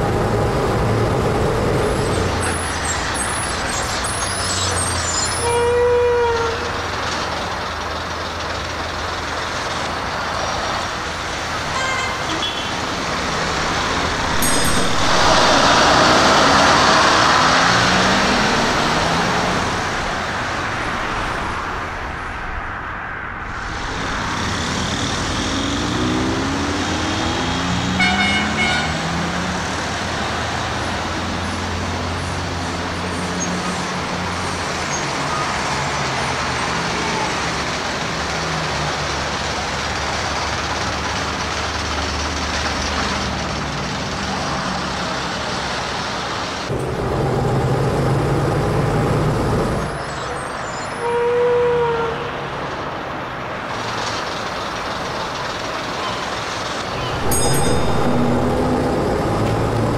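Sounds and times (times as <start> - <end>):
traffic noise: 0.0 - 59.9
deep loud engine drone: 13.2 - 19.3, 56.9 - 59.9
engine rising in pitch: 13.2 - 19.8, 56.9 - 59.9.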